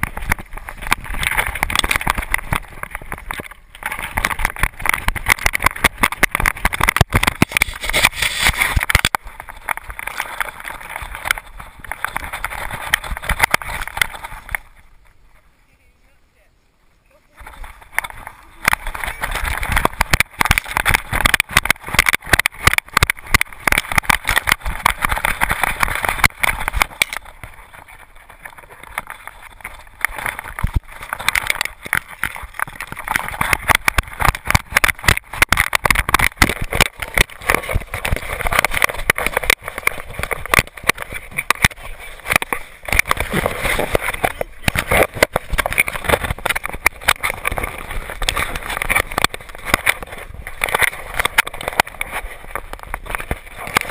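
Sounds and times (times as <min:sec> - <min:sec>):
camera rattling in loose mount: 0:00.0 - 0:14.8, 0:17.4 - 0:53.9
rubbing noise: 0:00.0 - 0:14.8.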